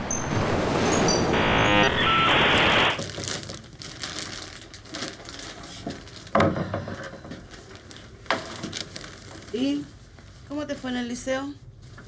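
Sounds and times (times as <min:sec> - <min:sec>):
static hiss with electronic bleeps: 0:00.0 - 0:03.0
plastic bag crinkling: 0:03.0 - 0:06.4, 0:07.5 - 0:10.5.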